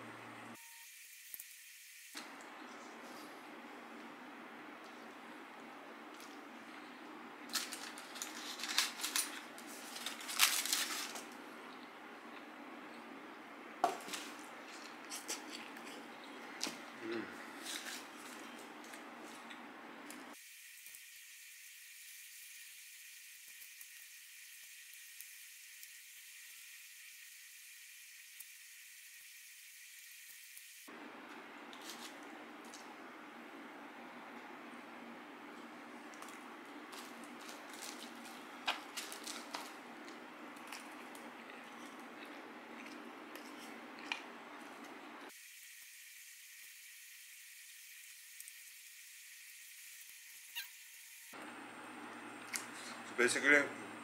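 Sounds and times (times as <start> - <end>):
fingers tearing chicken in foil: 7.5 - 11.4, 37.0 - 39.8
eating mouth noises and chewing: 14.6 - 17.8, 37.2 - 45.0.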